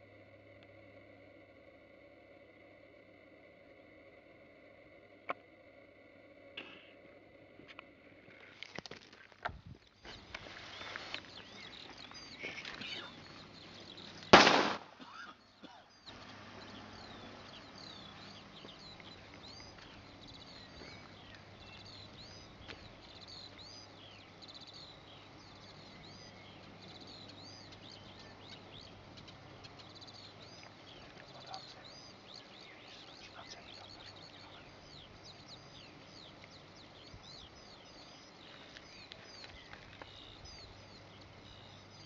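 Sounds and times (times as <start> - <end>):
birds chirping: 9.4 - 42.0
smoke grenade burst: 14.3 - 15.0.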